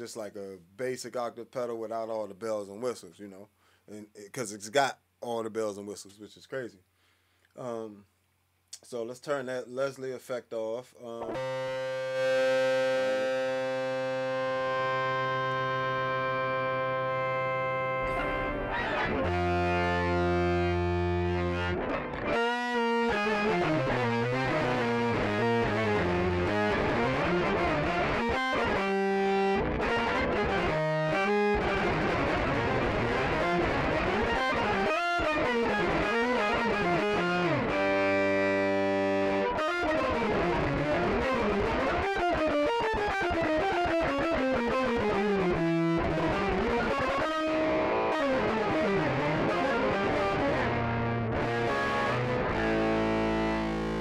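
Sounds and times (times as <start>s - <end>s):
electric bass guitar with octave effect: 11.1s - 54.0s.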